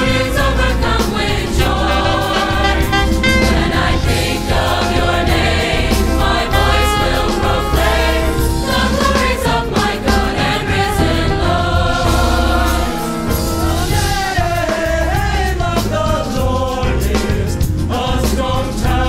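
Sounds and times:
bass guitar: 0.0 - 19.0
gospel choir singing: 0.0 - 19.0
piano: 0.0 - 19.0
saxophone: 1.5 - 10.4.

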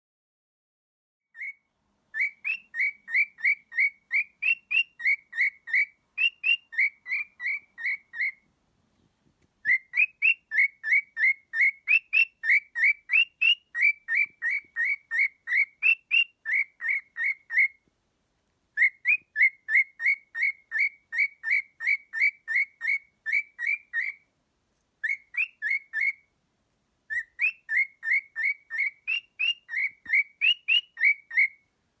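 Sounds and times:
cockatiel whistling song: 1.3 - 8.5, 9.6 - 17.9, 18.8 - 24.3, 25.0 - 26.3, 27.0 - 31.7.

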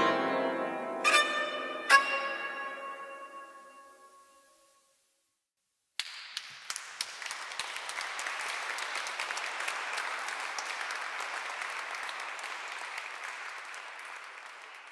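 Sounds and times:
audience applauding: 6.0 - 14.9.

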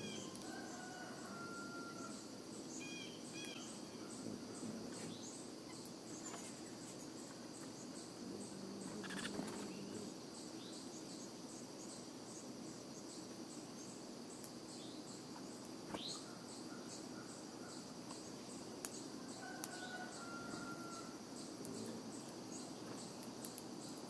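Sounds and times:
insects calling: 0.0 - 24.0.

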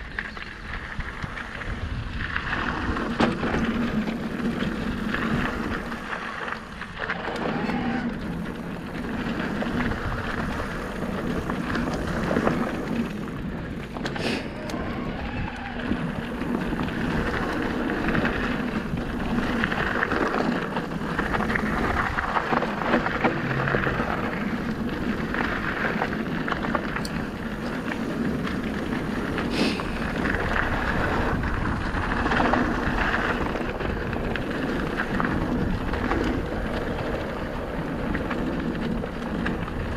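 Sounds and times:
bike tyres on gravel: 0.0 - 39.9
wind on microphone: 0.7 - 6.0, 14.4 - 39.9.

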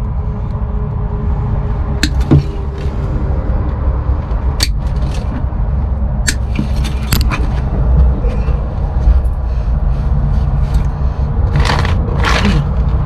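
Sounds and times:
low mechanical hum: 0.0 - 13.0
hose and wiring scraping: 9.0 - 13.0.

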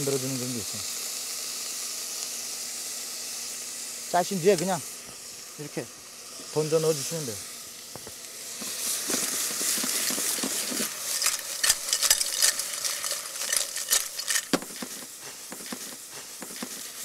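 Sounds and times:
clams sizzling in a hot pan: 0.0 - 17.0
steam hissing: 0.0 - 17.0
clicks and clatters: 9.2 - 15.9.

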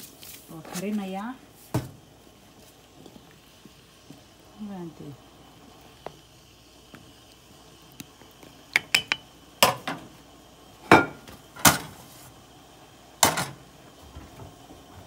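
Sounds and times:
metal pot knocks and clanks: 8.7 - 9.9.

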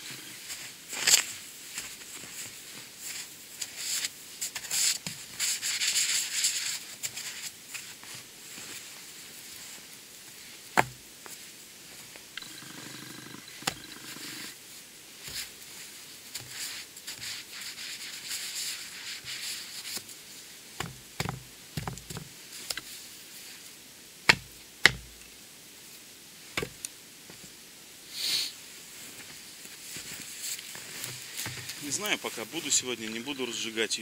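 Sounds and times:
snow being brushed and crunched: 0.0 - 12.3, 14.1 - 20.8, 22.4 - 23.8, 27.3 - 34.0.

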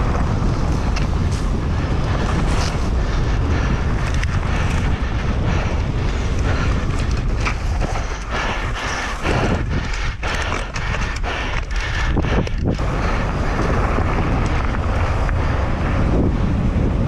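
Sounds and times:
bike clattering over bumps: 0.0 - 17.0
tyres on loose dirt: 0.0 - 17.0
wind buffeting microphone: 0.0 - 17.0.

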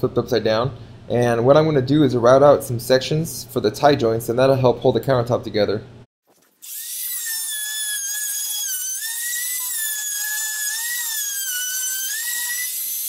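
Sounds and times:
router whining while cutting: 6.6 - 13.0.

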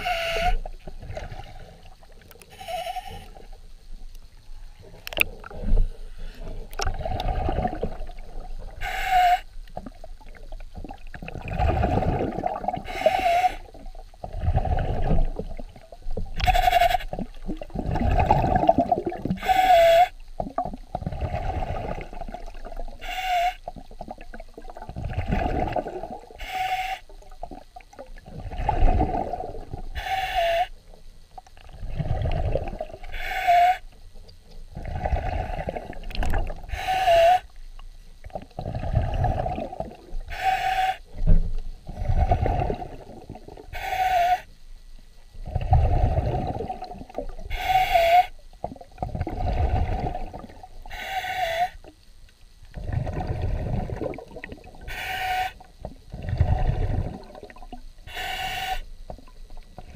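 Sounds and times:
breathing through a snorkel: 11.5 - 15.1, 34.7 - 37.5, 47.5 - 48.4, 58.1 - 58.9.

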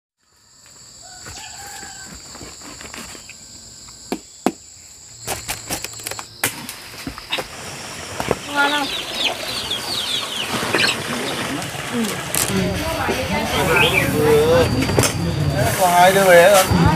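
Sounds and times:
steady high whine: 2.2 - 16.9
chickens clucking: 8.5 - 14.8.

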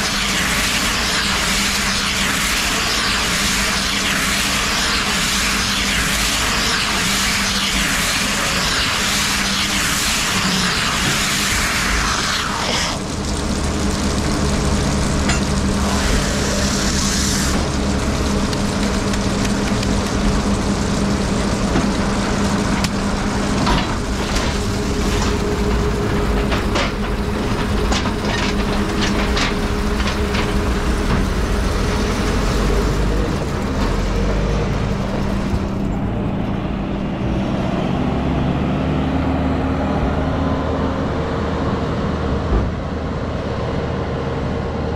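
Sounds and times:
loud hiss: 0.0 - 13.2, 14.7 - 18.5
machine mechanical drone: 0.0 - 44.9.

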